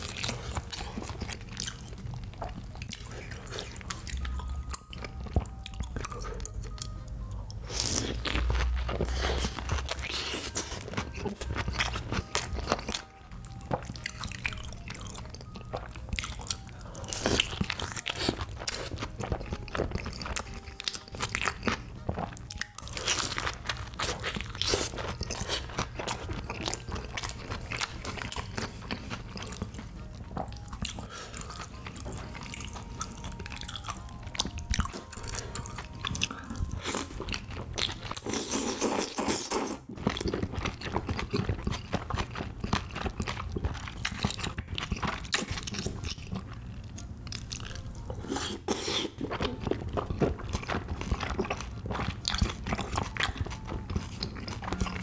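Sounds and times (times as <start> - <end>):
crunchy bites and chewing: 13.7 - 46.6, 47.3 - 55.0
wet slurping and chewing: 13.7 - 55.0.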